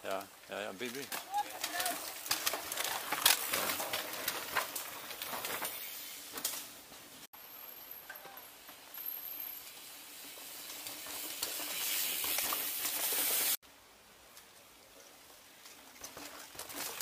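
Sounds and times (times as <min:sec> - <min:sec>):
bike tyres hissing on dirt: 0:00.2 - 0:13.6.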